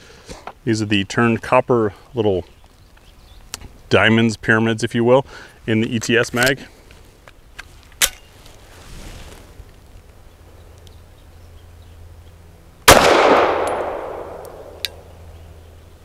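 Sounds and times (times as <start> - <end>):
pistol shot with echo: 12.9 - 15.2.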